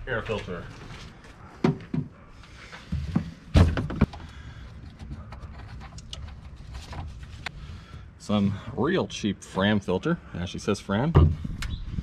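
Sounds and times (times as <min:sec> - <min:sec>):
knocks and thunks in engine bay: 0:11.1 - 0:11.8.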